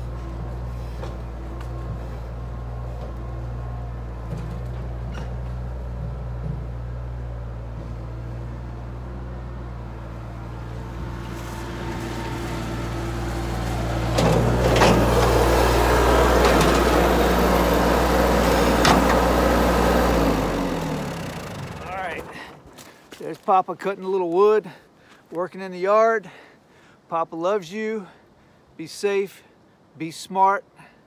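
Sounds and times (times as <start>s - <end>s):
tractor diesel engine running: 0.0s - 23.4s.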